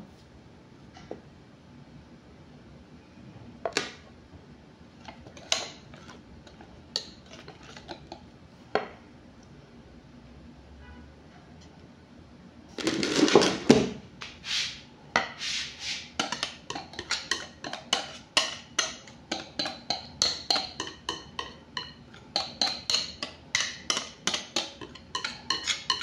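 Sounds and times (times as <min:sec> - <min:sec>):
whisk clinking against glass bowl: 0:16.2 - 0:26.0.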